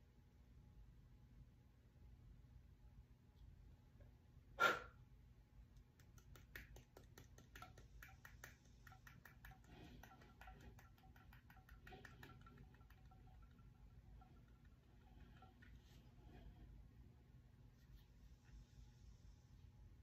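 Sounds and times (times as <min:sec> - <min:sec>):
faint steady tone: 0:07.8 - 0:20.0.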